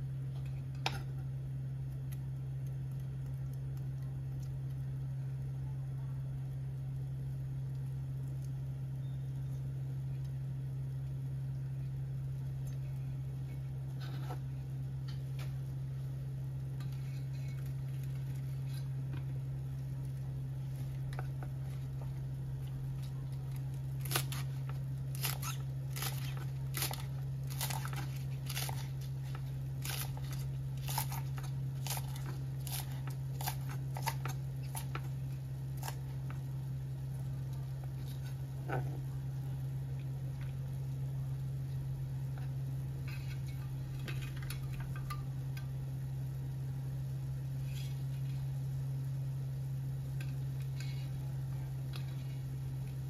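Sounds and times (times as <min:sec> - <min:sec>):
steady low hum: 0:00.0 - 0:53.0.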